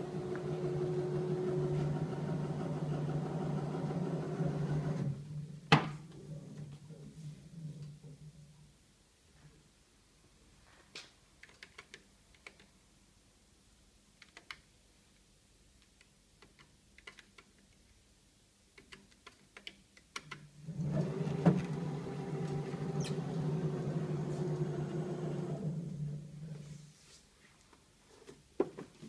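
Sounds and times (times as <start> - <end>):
paper guillotine motor humming: 0.0 - 5.2, 20.6 - 26.5.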